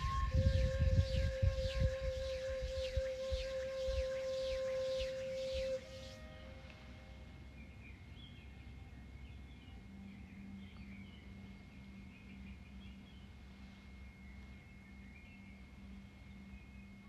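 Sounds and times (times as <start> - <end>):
soft low hum: 0.0 - 17.0
faint ringing tone: 8.6 - 17.0.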